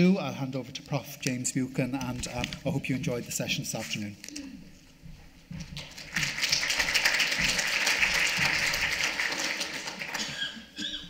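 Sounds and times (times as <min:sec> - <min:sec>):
audience applause: 0:05.8 - 0:10.6.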